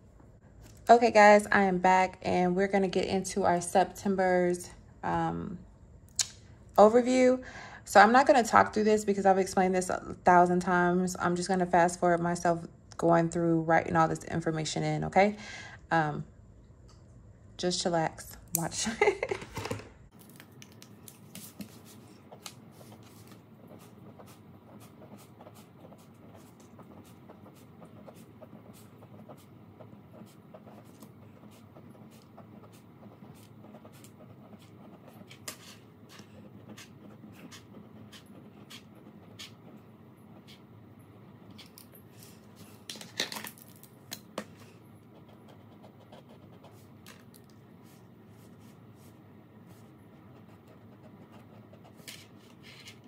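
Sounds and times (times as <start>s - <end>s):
steady low hum: 20.0s - 53.0s
pen scratching on paper: 21.2s - 40.7s, 45.0s - 47.0s, 48.4s - 53.0s.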